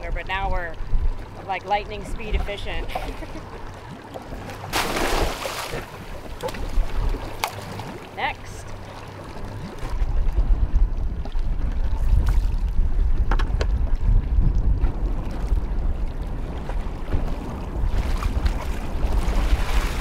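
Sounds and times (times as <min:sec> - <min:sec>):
wind rumbling on microphone: 0:00.0 - 0:20.0
water splashing: 0:01.3 - 0:10.4.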